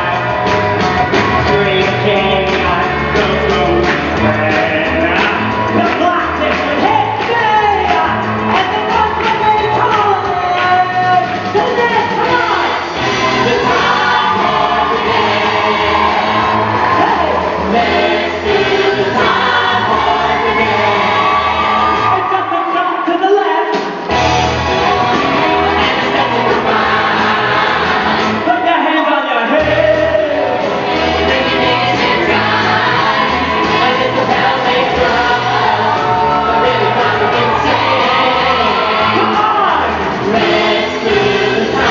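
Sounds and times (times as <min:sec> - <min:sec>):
voices singing with backing band: 0:00.0 - 0:23.1, 0:23.7 - 0:41.9.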